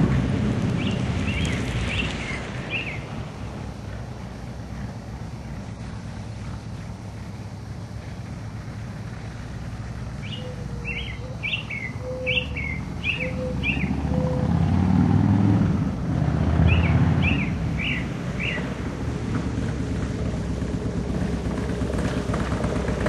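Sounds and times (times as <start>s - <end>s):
bird chirping: 0.8s - 3.2s, 10.2s - 14.6s, 16.6s - 18.7s
motorcycle engine idling: 0.8s - 13.8s, 16.8s - 23.0s.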